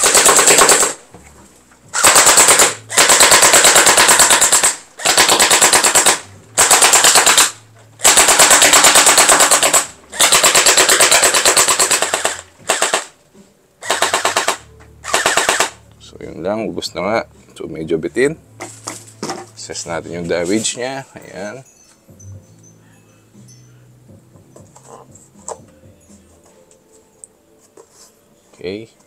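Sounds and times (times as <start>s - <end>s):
gel blaster firing full auto: 0.0s - 1.0s, 2.0s - 13.1s, 13.8s - 15.8s.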